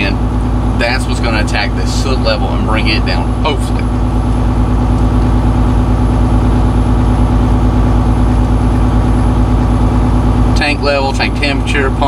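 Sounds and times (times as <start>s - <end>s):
diesel truck engine running: 0.0s - 12.0s.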